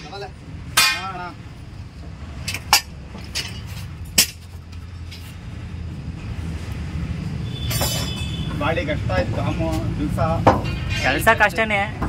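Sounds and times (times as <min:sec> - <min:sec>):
sharp metallic knocks: 0:00.0 - 0:01.3, 0:10.4 - 0:11.2
vehicle engine rumbling: 0:00.0 - 0:12.0.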